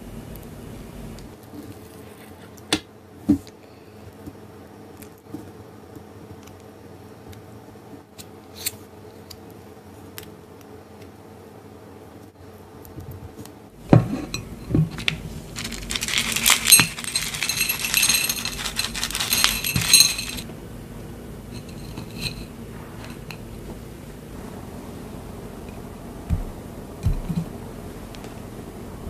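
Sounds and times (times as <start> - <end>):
granola rattling on ceramic plate: 14.4 - 20.4.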